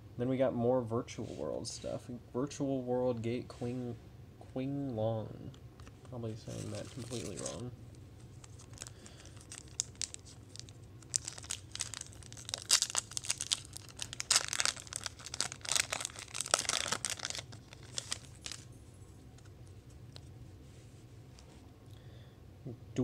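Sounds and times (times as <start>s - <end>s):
foil wrapper crinkling and tearing: 6.4s - 7.7s, 8.3s - 18.7s.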